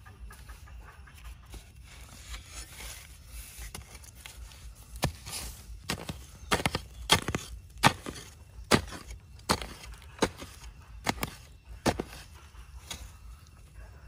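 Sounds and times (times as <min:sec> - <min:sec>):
machete chopping into soil: 0:05.0 - 0:13.1.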